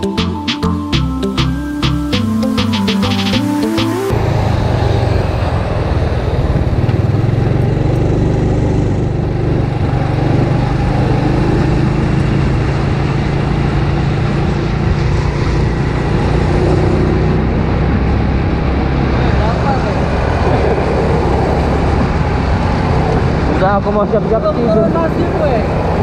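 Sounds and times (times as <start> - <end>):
scooter engine running: 2.6 - 18.4.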